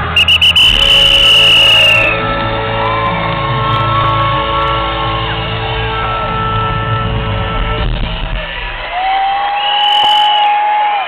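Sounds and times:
live band music: 0.0s - 8.5s.

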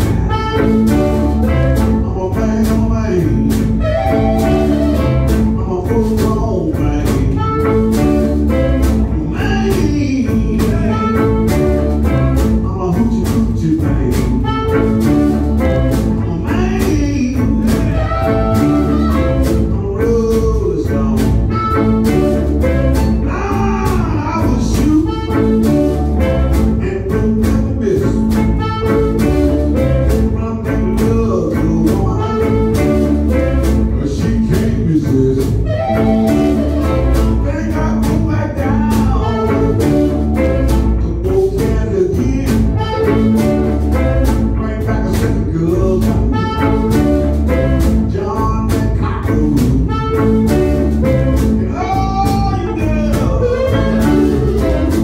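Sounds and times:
cajon and snare drum beat: 0.0s - 55.0s
electric and acoustic guitars: 0.0s - 55.0s
harmonica wailing: 3.8s - 5.6s, 17.8s - 19.7s, 21.5s - 23.8s, 35.6s - 38.0s, 42.7s - 44.6s, 49.9s - 55.0s.

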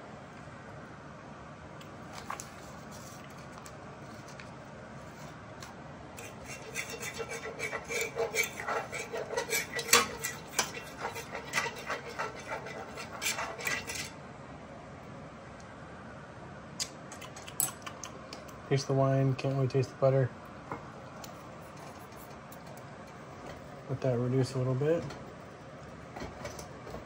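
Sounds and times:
metal utensil scraping a pan: 6.2s - 14.2s.

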